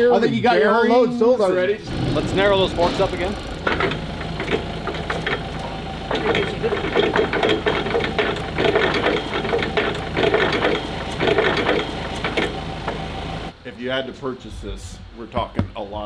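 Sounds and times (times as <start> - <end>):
low engine hum: 1.8 - 13.5.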